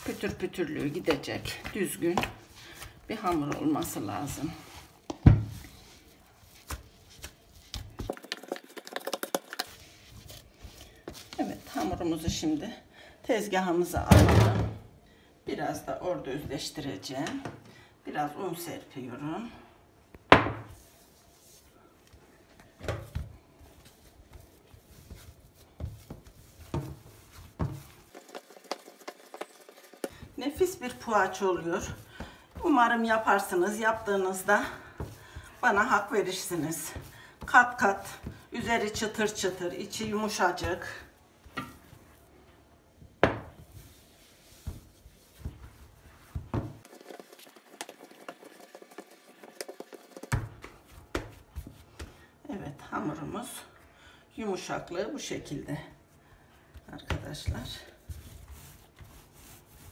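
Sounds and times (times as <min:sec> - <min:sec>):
dough thudding on countertop: 0:20.3 - 0:20.8, 0:43.2 - 0:47.2, 0:47.8 - 0:52.2
dough thumping on countertop: 0:20.3 - 0:20.8, 0:24.3 - 0:34.1, 0:43.2 - 0:52.2.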